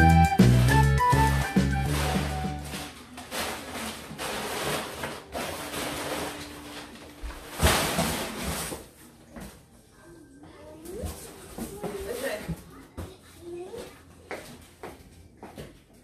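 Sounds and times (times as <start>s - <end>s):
packing paper rustling: 1.0s - 9.2s.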